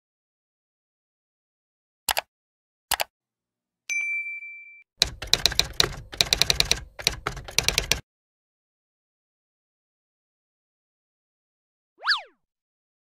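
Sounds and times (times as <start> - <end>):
mouse clicks: 2.1 - 2.3, 2.9 - 3.1
bell ding: 3.9 - 4.9
fast keyboard typing: 5.0 - 8.0.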